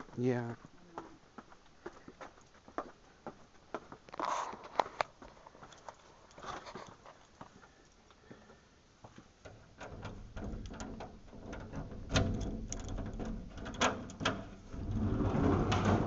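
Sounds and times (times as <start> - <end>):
metal latch clicks and knocks: 9.4 - 15.0
low rumble: 14.6 - 16.0.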